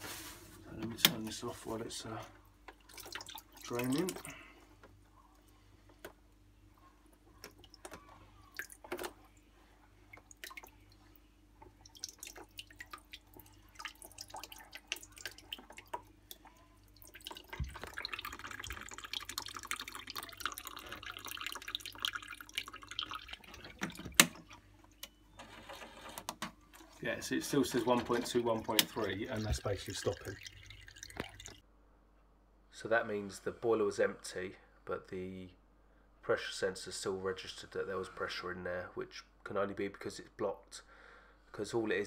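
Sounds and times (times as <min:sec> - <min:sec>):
water dripping and trickling: 0:02.6 - 0:04.4, 0:07.4 - 0:09.1, 0:10.0 - 0:24.6, 0:26.7 - 0:31.6.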